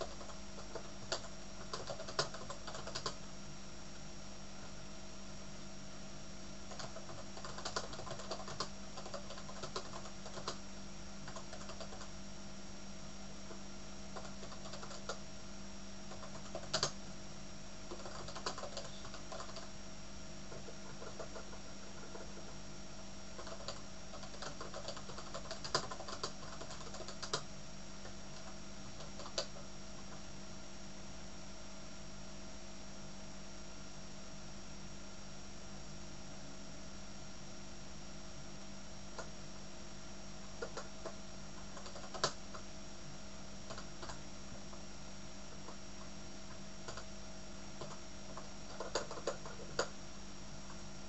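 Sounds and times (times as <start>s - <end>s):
typing on computer keyboard: 0.0s - 3.2s, 6.7s - 10.6s, 11.2s - 12.1s, 14.2s - 15.2s, 16.1s - 17.0s, 17.9s - 19.7s, 20.5s - 22.6s, 23.4s - 30.2s, 40.6s - 42.6s, 43.7s - 44.2s, 46.8s - 47.1s, 47.8s - 49.9s
steady background hum: 0.0s - 51.0s.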